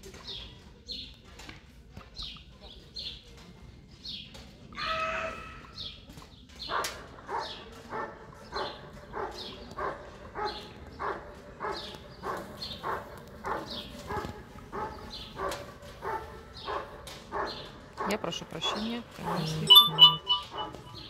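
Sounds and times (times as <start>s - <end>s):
dog barking rhythmically: 16.1s - 21.0s.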